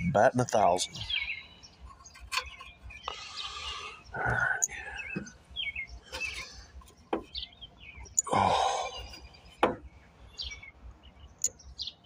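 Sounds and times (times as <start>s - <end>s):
birds chirping: 0.0s - 12.0s
sharp knocks and clicks: 6.1s - 7.4s, 9.5s - 9.9s.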